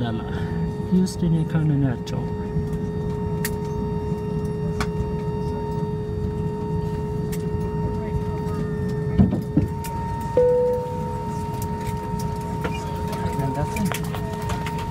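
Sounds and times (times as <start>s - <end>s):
cabin air hum: 9.8s - 12.6s
cabin chime: 10.4s - 11.5s.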